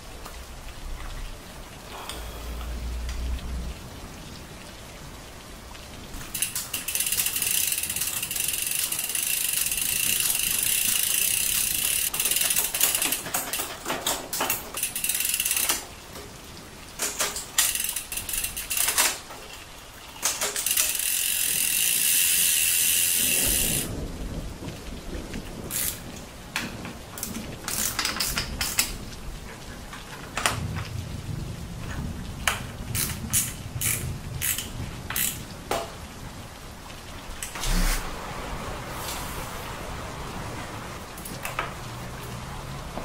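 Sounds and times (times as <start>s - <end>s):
bicycle chain running: 6.3s - 15.9s, 17.0s - 19.3s, 20.2s - 24.0s, 25.7s - 26.0s, 27.2s - 28.9s, 33.0s - 35.4s
freewheel ratcheting buzz: 6.4s - 13.2s, 17.6s - 19.1s, 20.5s - 23.9s.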